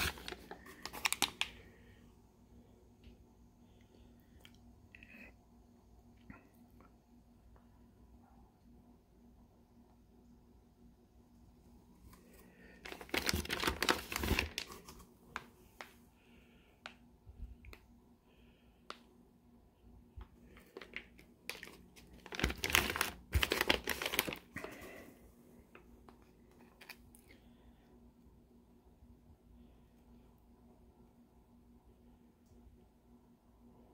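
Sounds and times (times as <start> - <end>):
plastic bags crinkling: 0.0 - 1.6, 12.8 - 15.0, 20.5 - 25.0.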